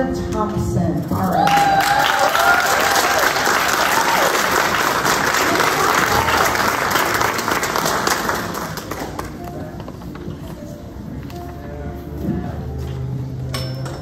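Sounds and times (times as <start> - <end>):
shouted cheers: 1.4 - 4.6
crowd applauding: 1.4 - 9.5.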